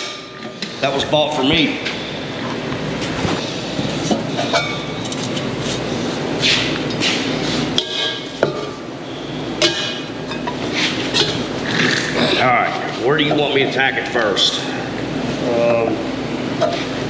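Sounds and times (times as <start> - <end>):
metal pipe and tools clanking: 4.1 - 5.5, 9.6 - 11.4.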